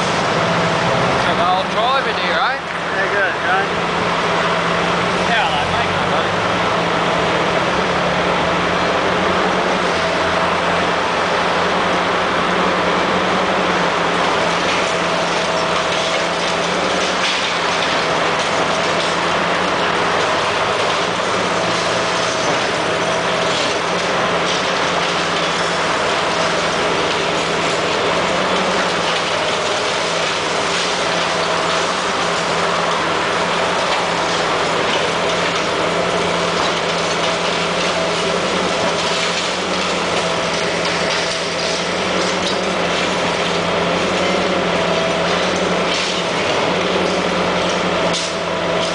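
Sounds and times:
diesel excavator engine droning: 0.0s - 48.9s
concrete cracking: 12.9s - 48.9s.

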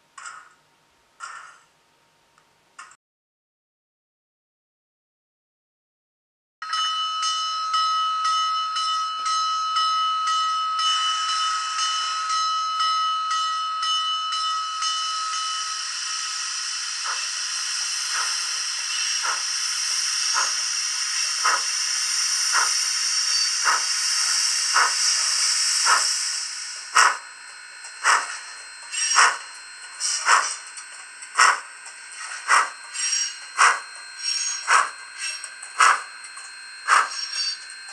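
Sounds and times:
locomotive bell ringing: 6.6s - 37.9s
steam hiss: 15.5s - 27.2s, 28.0s - 29.4s, 30.0s - 30.6s, 36.9s - 37.2s.

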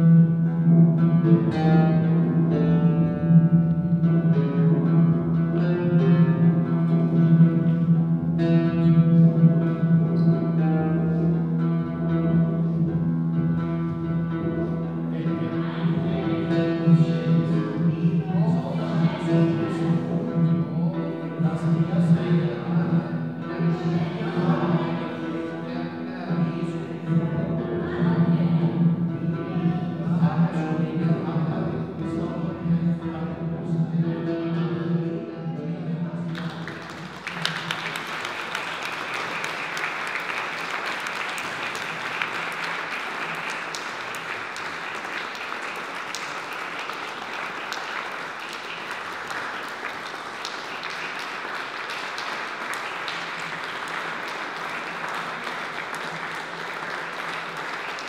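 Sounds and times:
audience applause: 36.3s - 58.0s.

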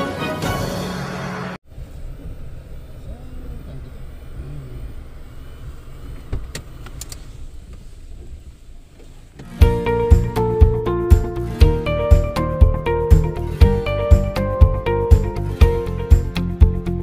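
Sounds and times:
car engine rumbling: 0.4s - 17.0s
car door clicks: 6.0s - 9.6s
music with strong beat: 9.5s - 17.0s.

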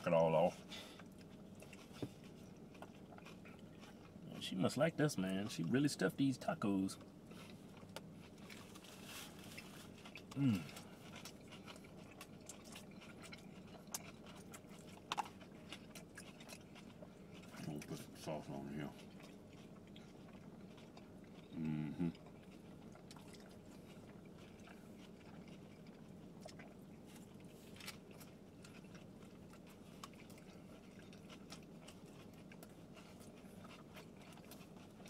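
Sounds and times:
chewing and biting food: 0.0s - 35.0s
person humming mm: 10.3s - 10.8s, 21.5s - 22.2s.

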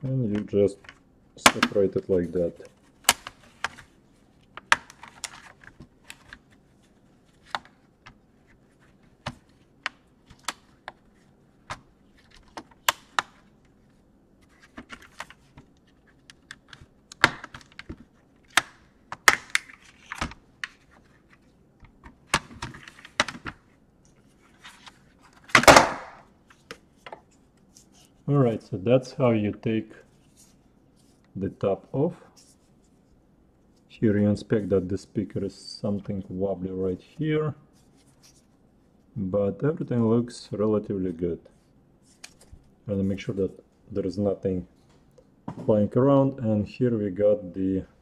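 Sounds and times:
loud plastic crack: 25.5s - 26.3s.

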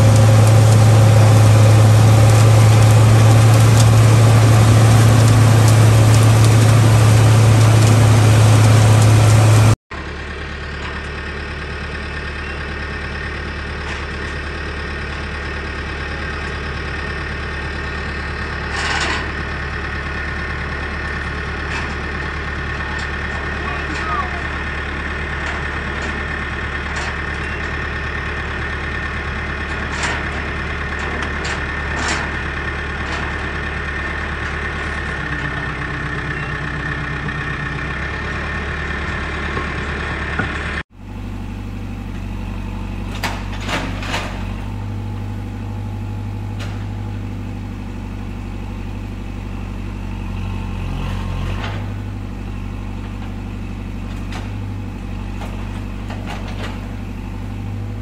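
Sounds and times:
heavy engine running: 0.0s - 58.0s.

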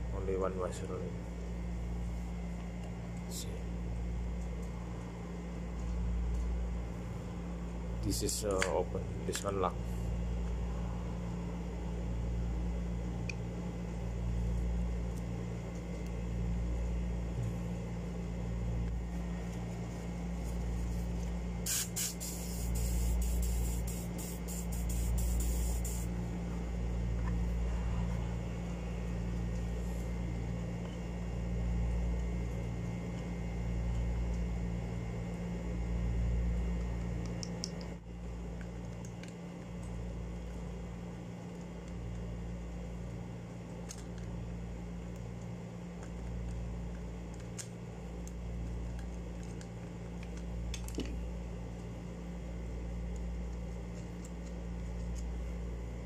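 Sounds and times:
low hum: 0.0s - 56.0s
spray can hissing: 21.6s - 26.1s.

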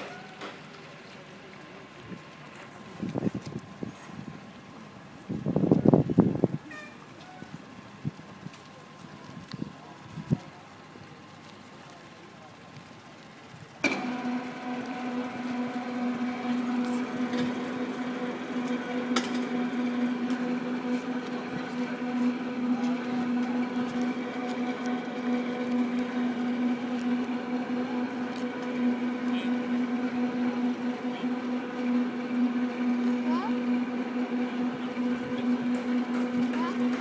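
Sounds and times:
crane hoist motor humming: 8.7s - 37.0s.

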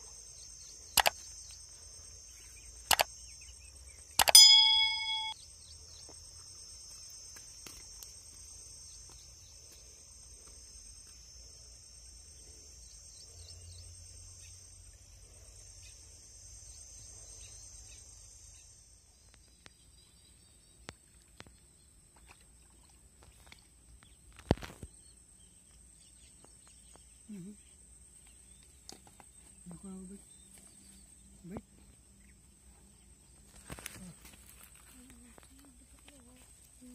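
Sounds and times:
insects chirring: 0.0s - 36.9s
faint clicks: 2.9s - 3.1s.

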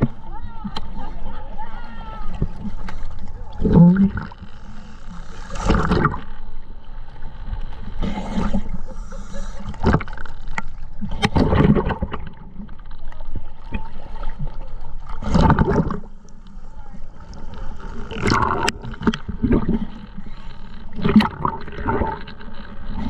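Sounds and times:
exhaled bubbles gurgling: 2.4s - 6.6s, 7.8s - 16.5s, 17.2s - 23.0s
hissing regulator inhalations: 4.5s - 6.2s, 8.0s - 10.1s.

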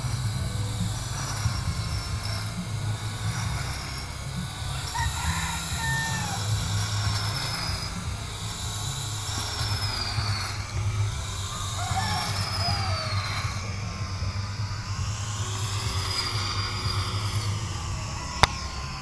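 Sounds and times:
grass trimmer cutting grass: 0.0s - 19.0s.

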